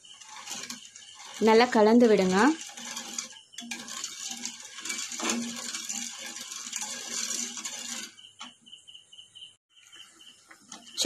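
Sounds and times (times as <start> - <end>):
ladle scraping metal pan: 0.0 - 8.6.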